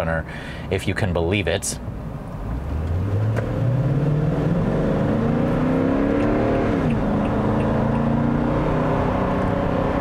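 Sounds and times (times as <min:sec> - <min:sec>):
car engine accelerating: 0:02.3 - 0:10.0.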